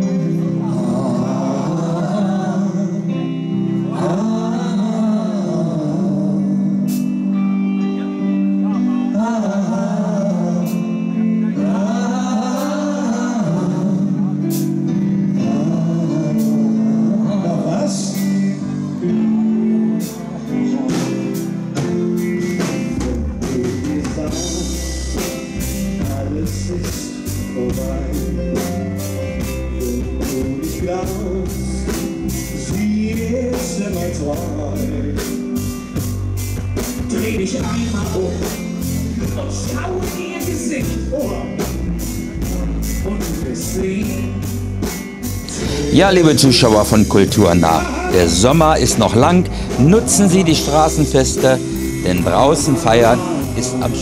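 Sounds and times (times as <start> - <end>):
bass guitar: 0.0 - 54.0
electric guitar: 0.0 - 54.0
people singing into microphones: 0.6 - 3.1, 45.5 - 46.5, 49.5 - 54.0
drum kit steady beat: 20.0 - 54.0.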